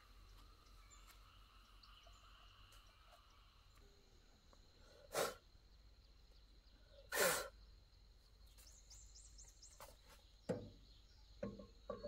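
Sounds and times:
bird chirping: 0.0 - 12.0
puff of breath: 4.8 - 5.4, 7.1 - 7.6.

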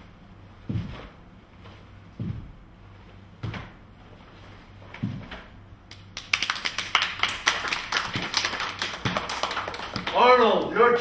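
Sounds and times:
bare feet stamping on wooden floor: 0.6 - 1.2, 2.1 - 2.7, 4.9 - 5.5
group clapping: 5.9 - 11.0.

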